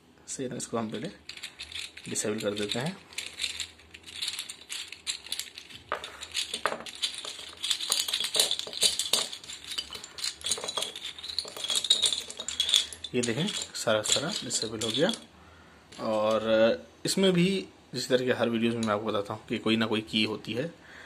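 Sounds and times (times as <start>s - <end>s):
wooden pieces clattering down: 1.2s - 15.2s
wooden puzzle pieces clicking: 1.2s - 15.2s.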